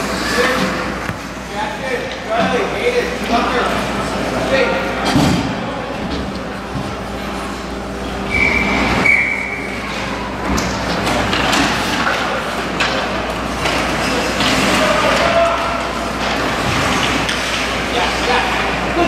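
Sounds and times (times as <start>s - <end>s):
high steady whistle tone: 8.3s - 9.8s
hockey sticks clacking: 10.5s - 18.8s.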